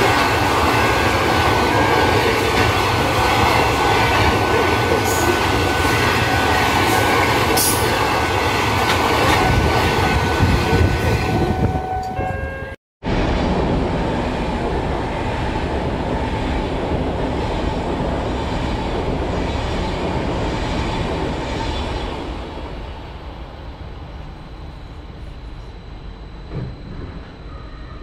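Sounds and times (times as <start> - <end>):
train passing at speed: 0.0 - 28.0.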